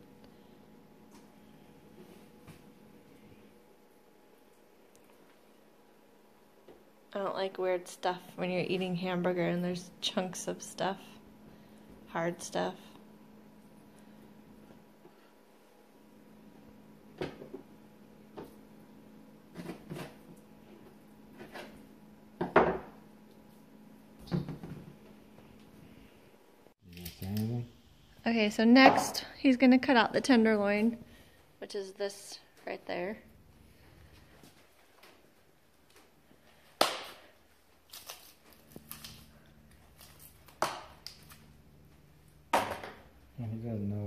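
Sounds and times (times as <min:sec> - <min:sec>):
faint steady hum: 0:00.0 - 0:44.0.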